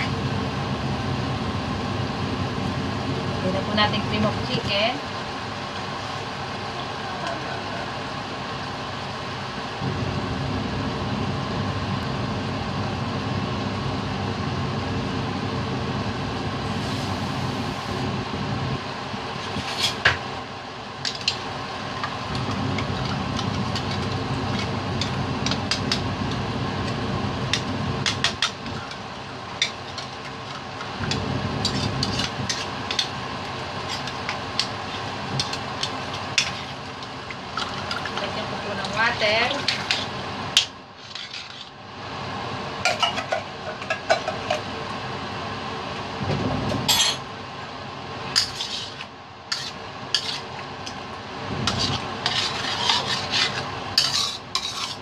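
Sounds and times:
mechanical hum: 0.0s - 55.0s
food popping and crackling in wok: 20.9s - 41.8s.

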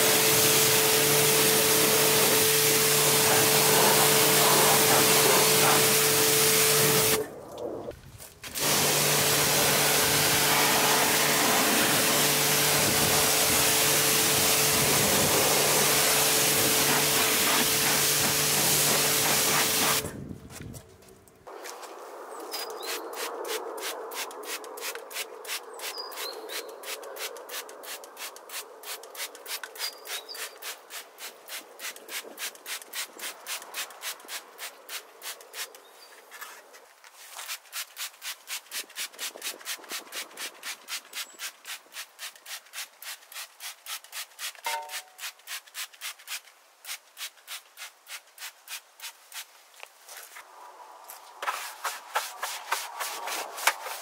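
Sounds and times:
stiff brush scrubbing plastic: 51.4s - 54.0s.

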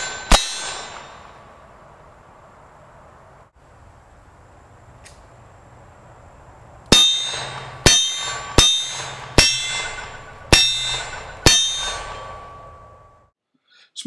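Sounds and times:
metallic ringing of steel target: 0.0s - 1.6s, 6.9s - 13.3s
revolver gunshots: 6.9s - 12.7s.

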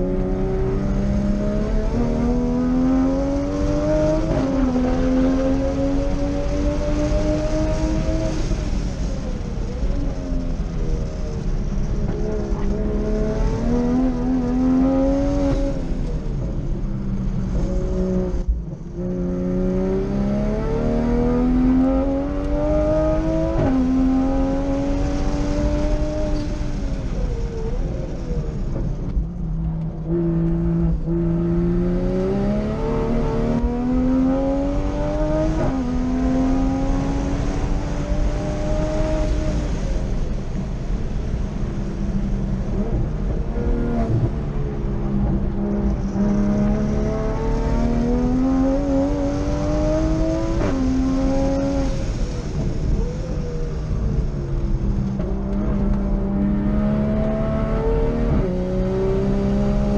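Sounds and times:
race car engine revving: 0.0s - 9.6s, 29.6s - 41.8s, 42.6s - 59.9s.

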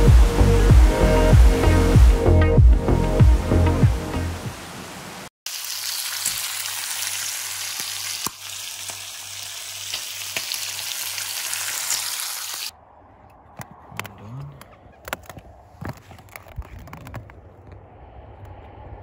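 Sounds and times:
food sizzling in a pan: 5.5s - 12.7s.

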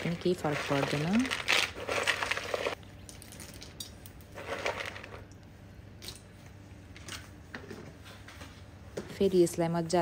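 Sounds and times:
nuts pattering into bowl: 0.0s - 5.2s.

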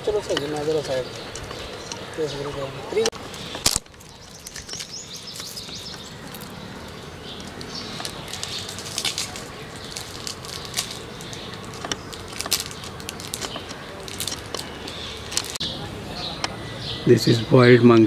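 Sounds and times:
high bird chirps: 0.0s - 17.7s
rustling and crackling clicks: 3.0s - 15.6s.

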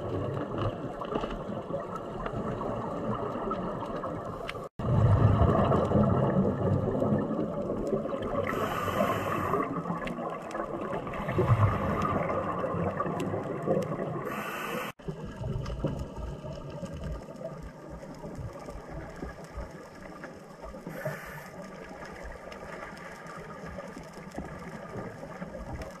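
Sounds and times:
underwater bubbling rumble: 0.0s - 26.0s
short hiss: 14.3s - 15.0s.

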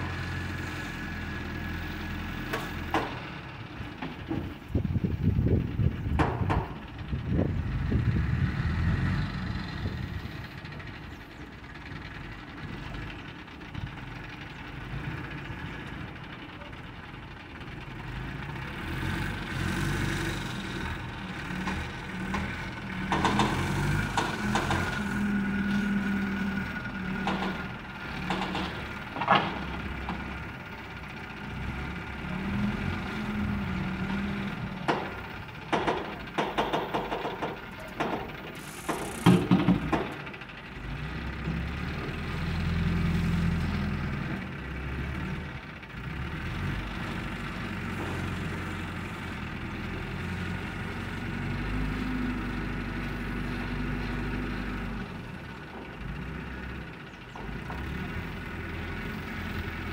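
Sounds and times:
diesel engine under load: 0.0s - 59.9s
sharp knocks: 34.9s - 38.3s.

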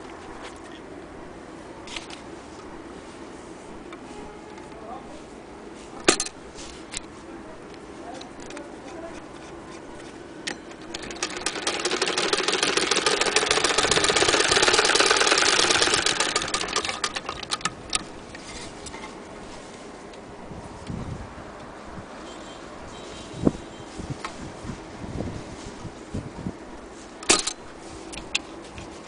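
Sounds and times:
sewing machine clattering: 10.7s - 18.0s.

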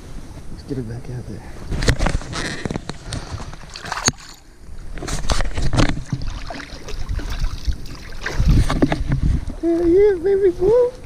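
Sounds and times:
lake water sloshing and splashing: 2.9s - 11.0s.

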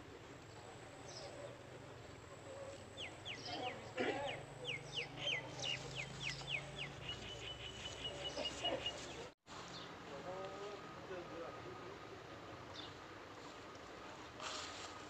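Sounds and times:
bird calling: 1.0s - 9.3s.

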